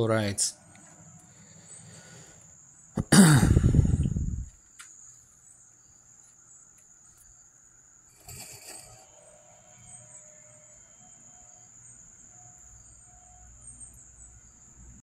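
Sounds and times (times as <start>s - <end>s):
faint high-pitched whine: 0.0s - 15.0s.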